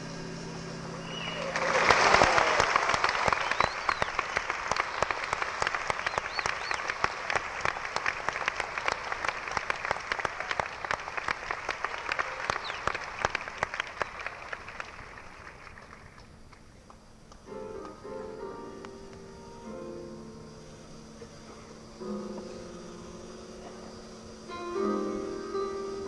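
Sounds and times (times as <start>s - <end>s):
whistles from audience: 1.0s - 9.4s, 10.2s - 14.5s
audience applauding: 1.0s - 17.4s.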